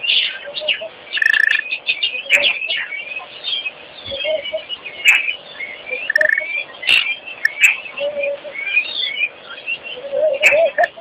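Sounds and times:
bird trill: 0.0 - 11.0
low bird notes: 0.0 - 11.0
starlings chirping and whistling: 0.0 - 11.0.

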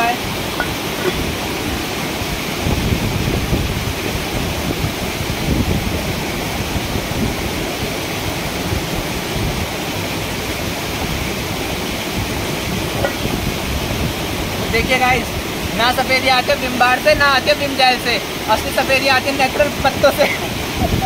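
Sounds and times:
waterfall and stream rushing: 0.0 - 21.0.

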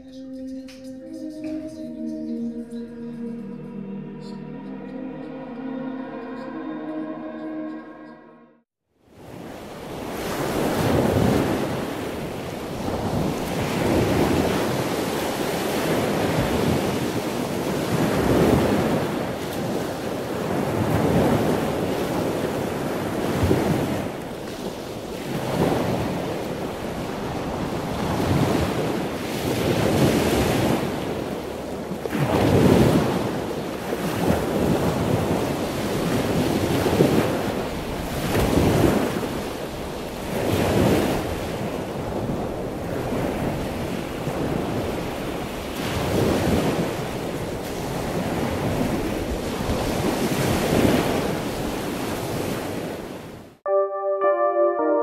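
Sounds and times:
wind noise: 9.2 - 53.1
surf breaking against seawall: 9.9 - 52.9.

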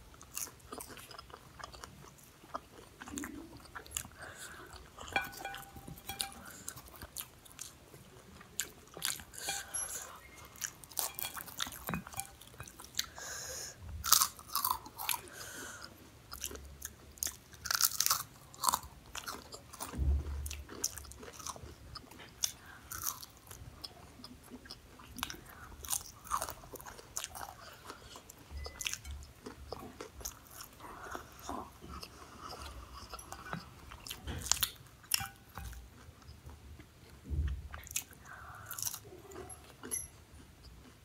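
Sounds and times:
crunching and chewing pastry: 0.0 - 41.0.

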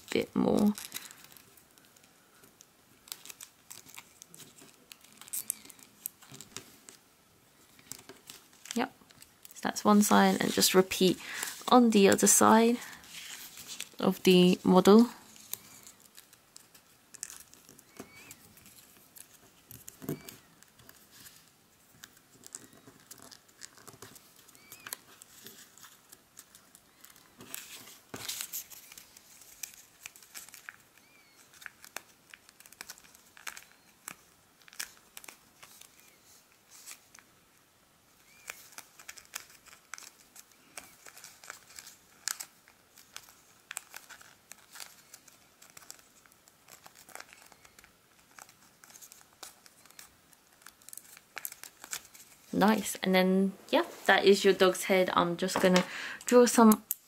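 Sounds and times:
paper crinkling and rustling: 0.0 - 7.0, 7.6 - 37.4, 38.1 - 53.0
crisp paper clicks: 0.6 - 7.0, 15.2 - 37.3, 38.2 - 52.5, 56.7 - 57.0.

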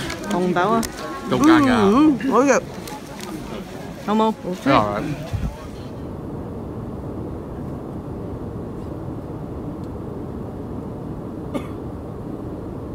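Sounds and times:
airliner cabin engine drone: 0.0 - 12.9.

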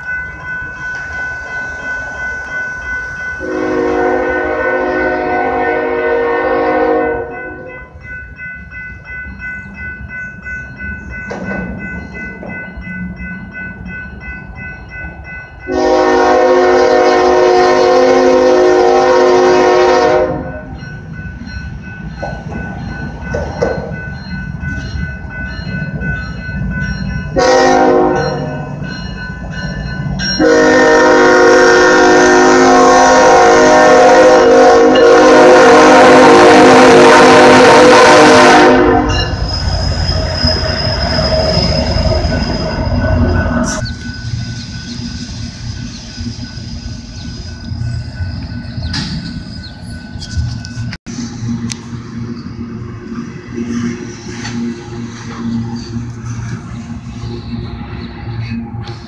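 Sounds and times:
low rumble of train: 0.0 - 59.0
railroad crossing bell ringing: 0.0 - 59.0
locomotive air horn blasts: 3.4 - 7.7, 15.7 - 20.7, 27.4 - 28.5, 30.4 - 39.4.

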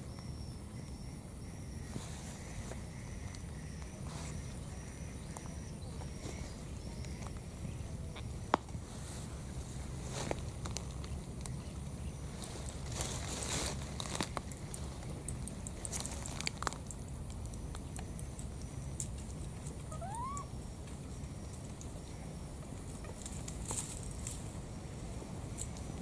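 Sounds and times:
outdoor background noise: 0.0 - 26.0
stems and leaves rustling: 1.7 - 26.0
baby monkey squeak: 19.9 - 20.5.

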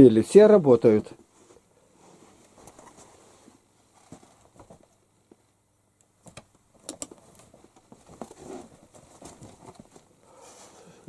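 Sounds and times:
soft rustling: 1.2 - 5.5, 7.2 - 10.9
clothing brushing: 1.3 - 4.4, 8.2 - 10.9.

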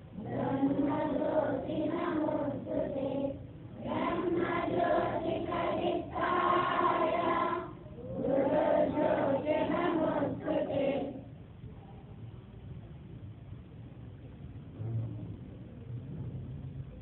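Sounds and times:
girls singing in unison: 0.0 - 11.3
low background noise: 0.0 - 17.0.

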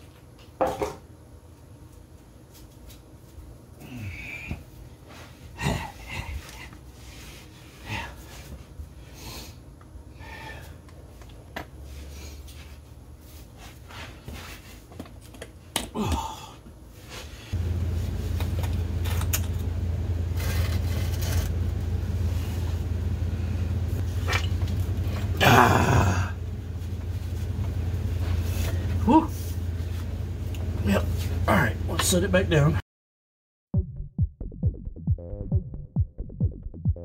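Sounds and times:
loud steady low hum: 0.9 - 32.8.

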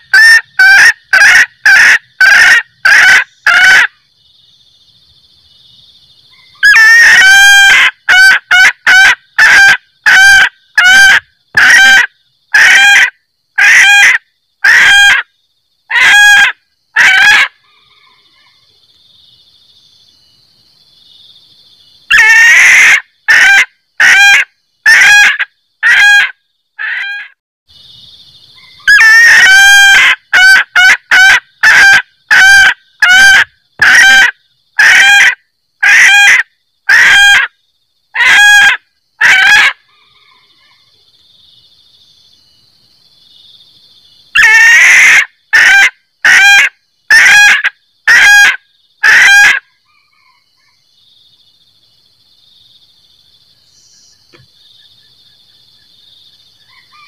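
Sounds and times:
junglefowl cackling: 0.0 - 4.0, 6.3 - 15.3, 15.9 - 18.7, 22.1 - 27.4, 28.6 - 41.0, 44.3 - 50.8, 56.6 - 57.0.

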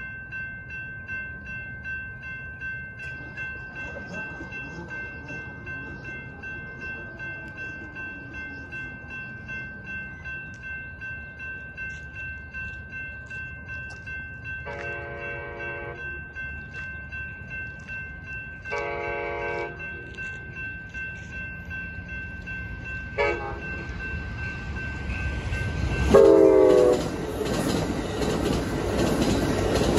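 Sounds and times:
railroad crossing bell ringing: 0.0 - 29.9
train horn blasts: 14.7 - 16.0, 18.7 - 19.8, 23.2 - 23.7, 26.1 - 27.1.

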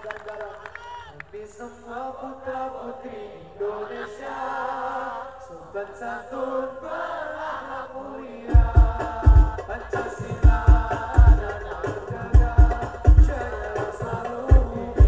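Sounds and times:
voices chanting devotional song: 0.0 - 15.0
deep drum beats: 8.5 - 15.0.

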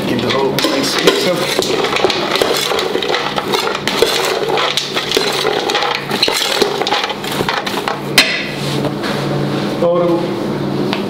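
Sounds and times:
beans clicking in metal bowl: 0.3 - 7.8.

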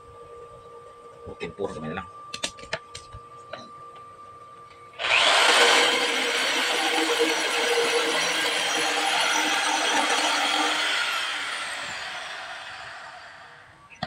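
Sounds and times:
bench grinder grinding metal: 5.0 - 13.6
electric drill whining: 5.0 - 13.8.

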